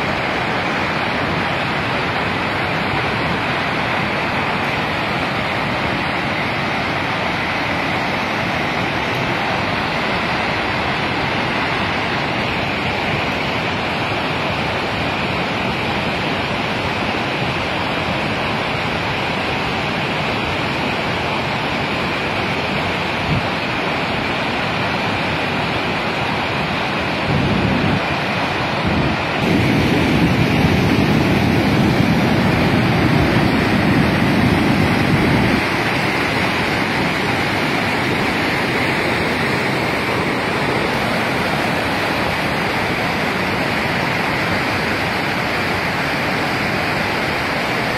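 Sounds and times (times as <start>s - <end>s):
floodwater rushing down gorge: 0.0s - 47.9s.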